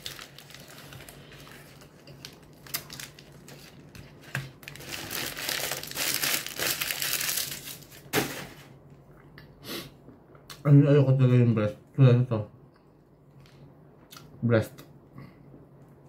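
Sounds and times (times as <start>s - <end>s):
paper wrapper crinkling: 0.0s - 8.6s.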